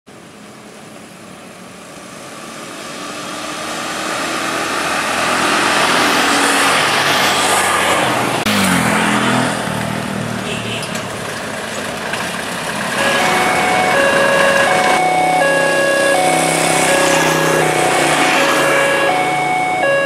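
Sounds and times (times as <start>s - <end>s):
scooters and motorcycles passing: 1.5s - 20.0s
motorbike engine passing close: 3.1s - 10.5s, 15.4s - 20.0s.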